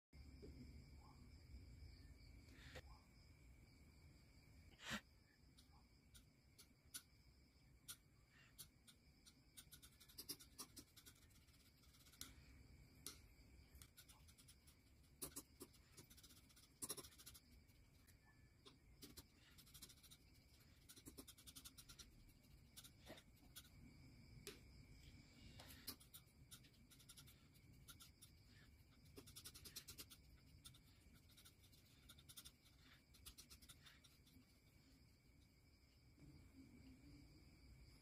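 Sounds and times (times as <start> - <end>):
palette knife scraping paint: 7.8 - 12.6, 13.7 - 23.9, 25.5 - 35.0.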